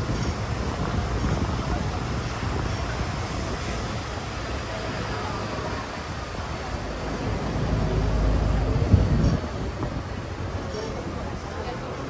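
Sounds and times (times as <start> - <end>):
bus engine rumbling: 0.0 - 12.0
street noise: 0.0 - 12.0.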